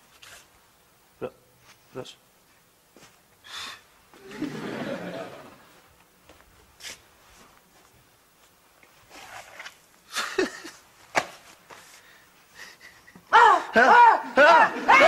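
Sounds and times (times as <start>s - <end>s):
soft rustles: 5.7s - 9.9s, 10.9s - 12.5s.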